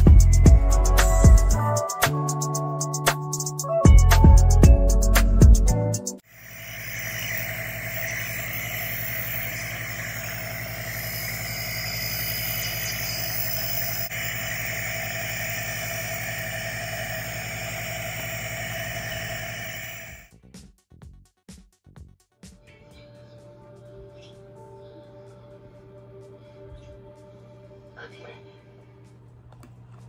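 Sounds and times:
hiss of air: 0:06.2 - 0:20.3
nebulizer compressor humming: 0:06.2 - 0:20.3.

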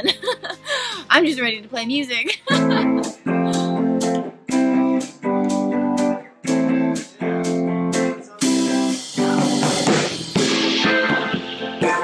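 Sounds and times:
electric guitar strumming chords: 0:02.5 - 0:12.0.

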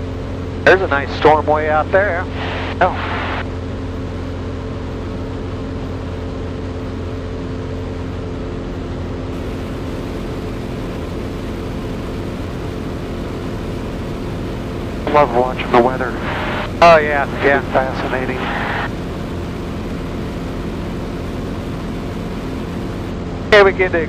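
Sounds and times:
aircraft engine droning: 0:00.0 - 0:24.0.

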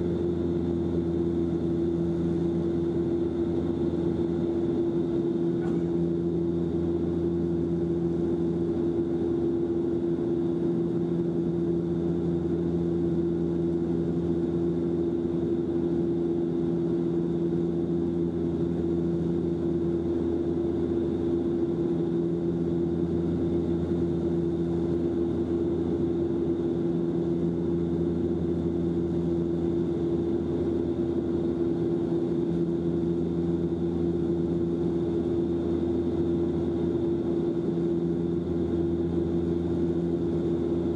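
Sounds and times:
low engine tone: 0:00.0 - 0:15.9
airplane cabin drone: 0:00.0 - 0:40.9.

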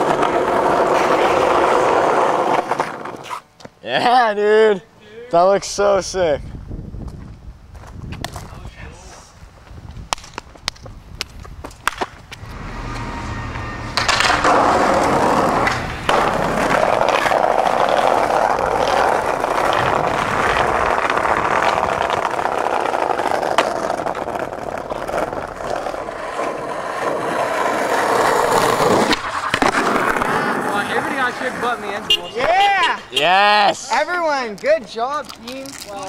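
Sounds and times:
skateboard clacks: 0:00.0 - 0:03.3, 0:10.1 - 0:13.0, 0:14.0 - 0:32.6
skateboard wheels rolling on pavement: 0:00.0 - 0:04.6, 0:05.8 - 0:36.0.

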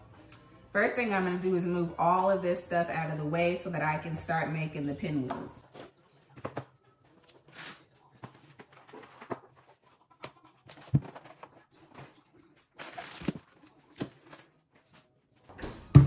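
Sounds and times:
plastic packaging rustling: 0:07.2 - 0:14.6.

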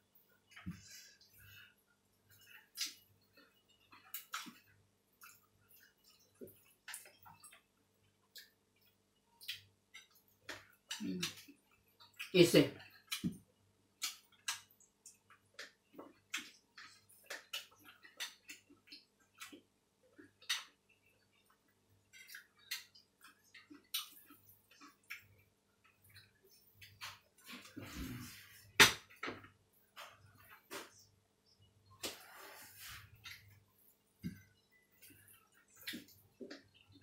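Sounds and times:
chewing: 0:00.4 - 0:28.6, 0:32.0 - 0:37.0.

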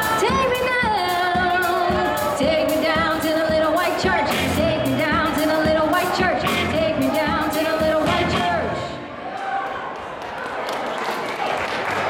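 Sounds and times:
drum kit beat: 0:00.0 - 0:08.7
guitar: 0:00.0 - 0:09.0
woman singing into a microphone: 0:00.0 - 0:09.0.

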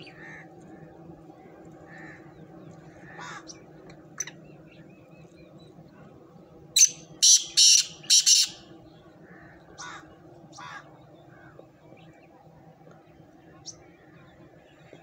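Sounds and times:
francolin rasping call: 0:06.8 - 0:10.9.

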